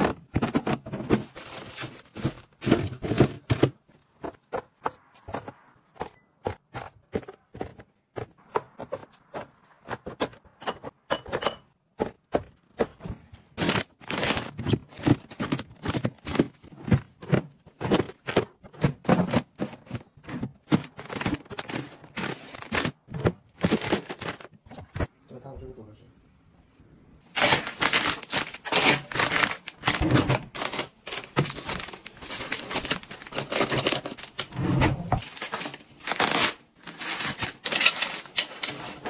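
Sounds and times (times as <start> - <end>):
plastic rustling: 0.0 - 4.3, 13.4 - 25.1, 27.3 - 39.0
cartons tapping on fridge shelves: 0.0 - 25.1.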